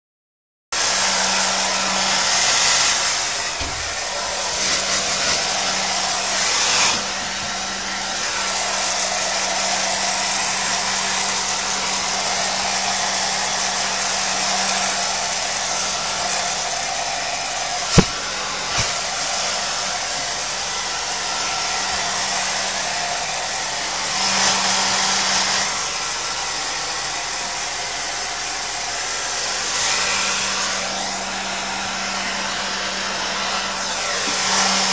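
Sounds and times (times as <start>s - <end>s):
hair dryer running: 0.8s - 34.9s.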